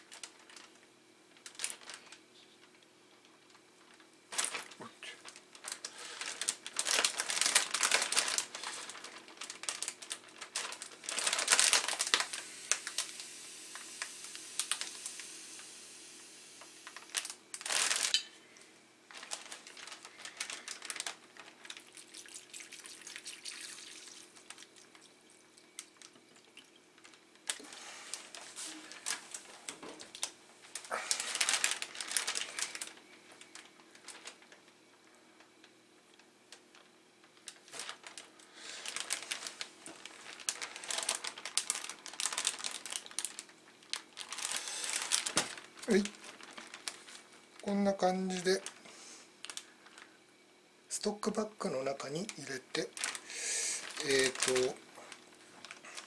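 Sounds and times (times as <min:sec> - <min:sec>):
plastic bags crinkling: 0:00.0 - 0:15.6, 0:16.6 - 0:50.3, 0:50.9 - 0:56.0
water pouring into a bag: 0:04.3 - 0:04.8, 0:05.5 - 0:15.7, 0:16.8 - 0:18.2, 0:19.1 - 0:29.2, 0:30.1 - 0:33.0, 0:37.5 - 0:48.6, 0:52.1 - 0:54.8.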